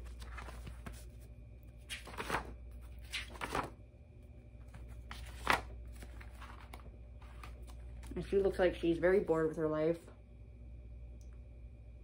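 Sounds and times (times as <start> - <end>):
paper pages rustling: 0.0 - 3.8, 4.6 - 8.2
low steady hum: 0.0 - 12.0.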